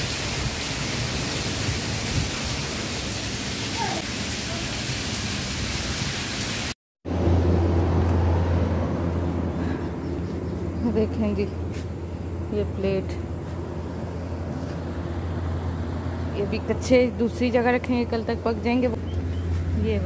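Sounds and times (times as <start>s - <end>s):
heavy rain pouring: 0.0s - 6.8s
runoff splashing on concrete: 0.0s - 6.8s.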